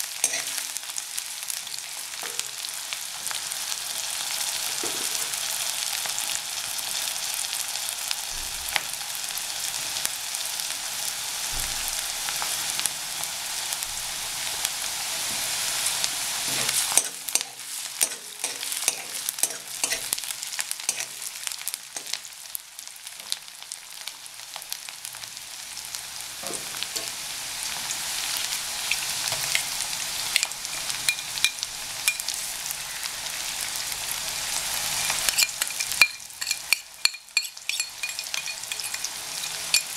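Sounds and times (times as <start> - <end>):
food sizzling in hot oil: 0.0 - 39.9
spoon scraping and clinking pan: 0.2 - 0.6, 16.7 - 20.2, 20.9 - 21.2, 30.4 - 32.4, 34.9 - 39.9.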